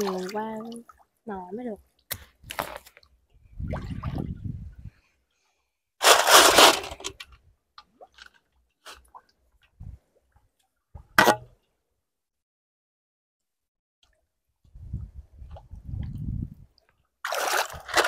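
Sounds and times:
water splashing and sloshing: 0.0s - 4.8s, 6.0s - 11.5s, 16.8s - 18.0s
small drips and squelches: 7.7s - 11.0s.

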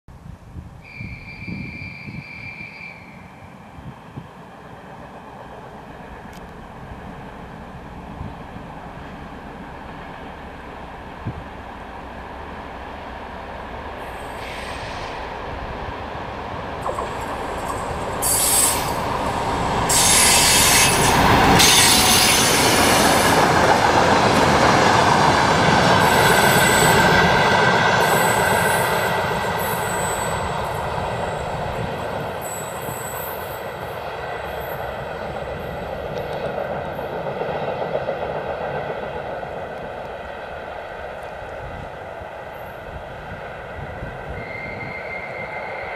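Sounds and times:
train engine and wheels on rails: 0.1s - 45.9s
high-pitched wheel squeal: 0.9s - 3.3s, 26.0s - 27.1s, 28.1s - 30.5s, 44.3s - 45.9s.

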